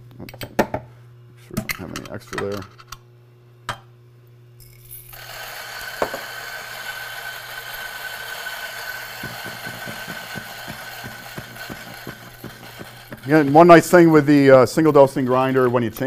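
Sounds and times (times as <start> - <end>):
coffee grinder whine: 4.6 - 16.0.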